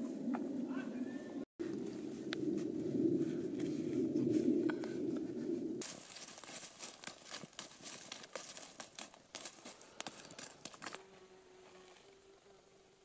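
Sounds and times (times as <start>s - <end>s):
stick raking campfire embers: 5.8s - 11.0s.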